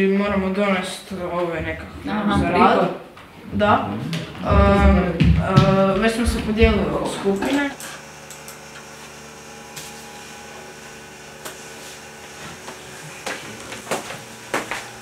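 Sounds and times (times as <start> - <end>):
computer machine hum: 3.6 - 15.0.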